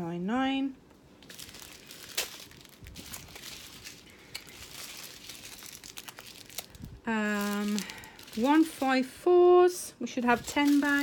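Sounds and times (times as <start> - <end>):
plastic bags crinkling: 1.2 - 9.1, 10.1 - 11.0.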